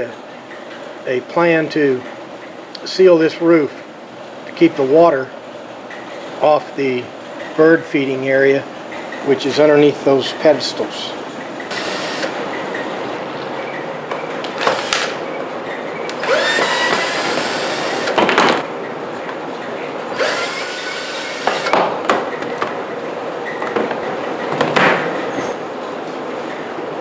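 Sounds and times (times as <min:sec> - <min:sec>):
cordless drill driving screws: 0:11.7 - 0:12.3, 0:16.2 - 0:18.2, 0:20.2 - 0:21.8.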